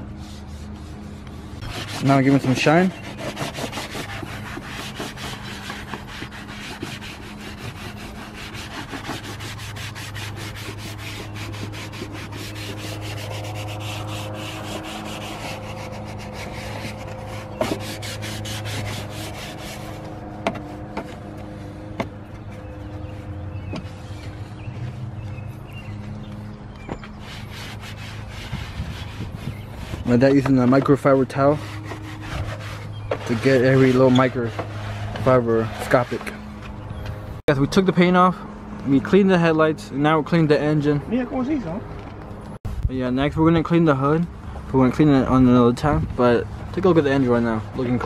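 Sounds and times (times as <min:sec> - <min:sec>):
cloth wiping plastic: 0:00.1 - 0:21.6.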